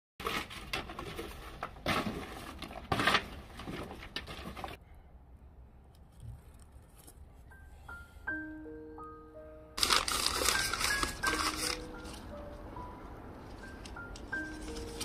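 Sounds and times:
cardboard rustling and scraping: 0.2 - 4.8.

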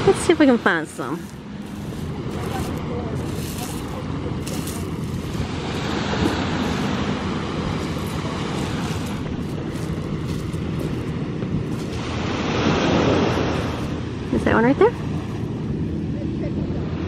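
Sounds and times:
wind rumbling on microphone: 0.0 - 17.0.

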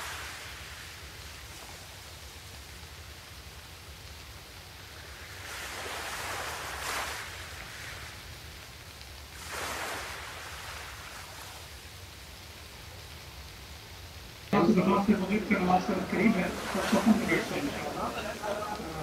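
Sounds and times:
low hum and hiss: 0.0 - 19.0
rushing noise: 14.5 - 19.0.

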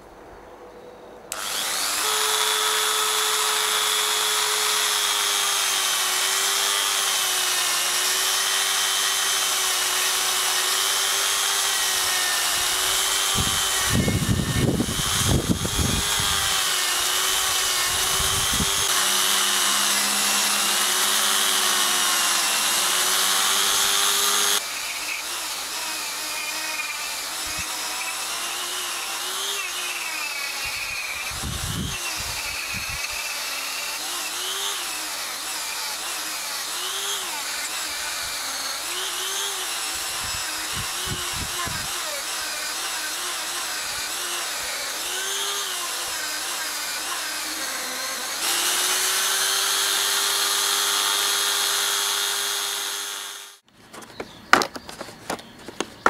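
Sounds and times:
rotary tool whine: 1.3 - 53.7
wheel grinding brass: 16.0 - 25.7.

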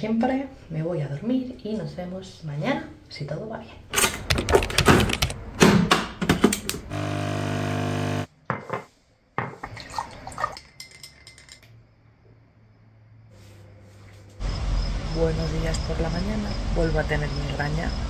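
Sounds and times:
coffee machine pump buzzing: 6.8 - 8.3.

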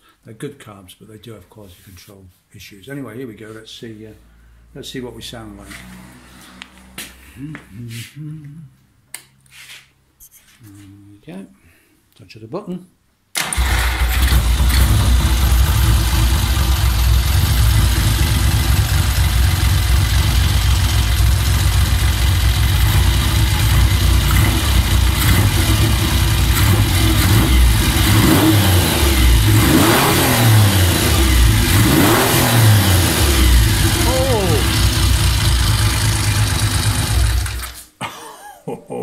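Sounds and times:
motorcycle engine revving: 13.6 - 37.8.

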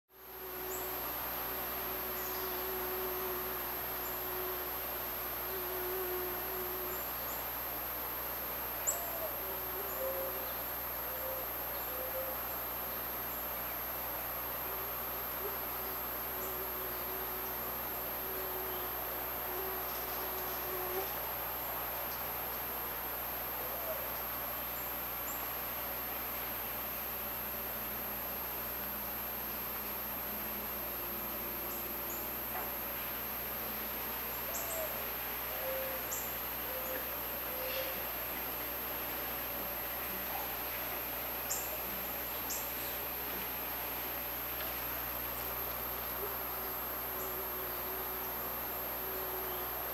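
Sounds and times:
soft low whistled notes: 0.1 - 13.7
high-pitched insect whine: 0.1 - 49.9
steady forest hiss: 0.1 - 49.9.

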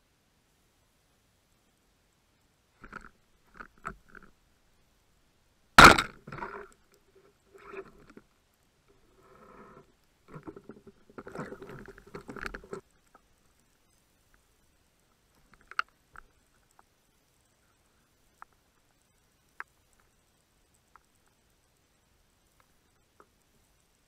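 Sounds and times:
speargun firing crack: 5.8 - 6.6.

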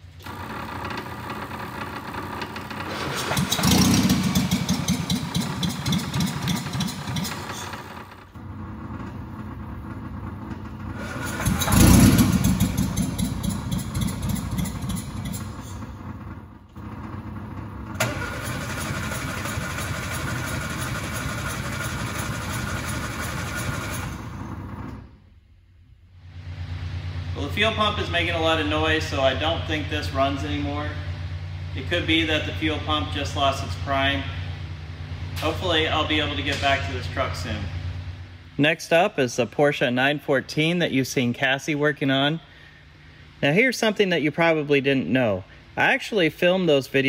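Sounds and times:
engine cranking on starter: 0.0 - 25.2
fuel pump running noisily: 0.1 - 25.0.

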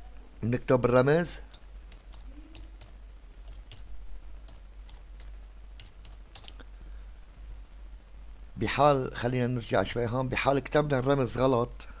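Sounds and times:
keyboard typing clicks: 1.5 - 6.6.

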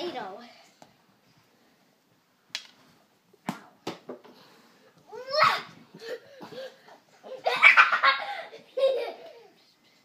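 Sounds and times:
child squealing: 5.1 - 5.7.

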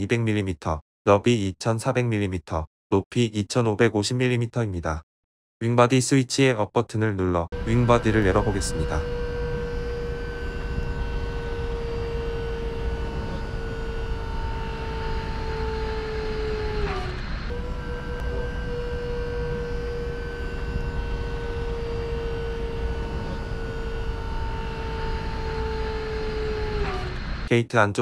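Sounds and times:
hydraulic power unit whining: 7.6 - 27.5.

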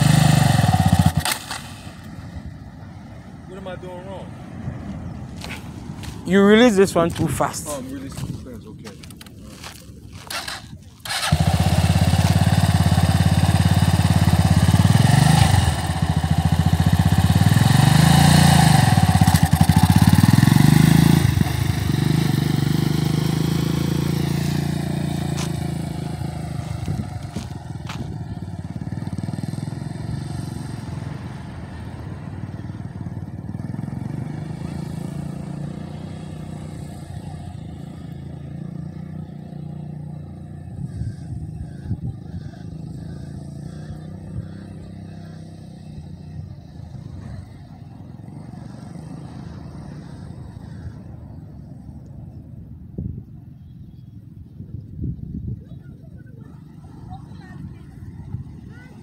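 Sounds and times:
dirt bike engine revving: 0.0 - 1.6, 10.2 - 31.2, 33.5 - 50.9.

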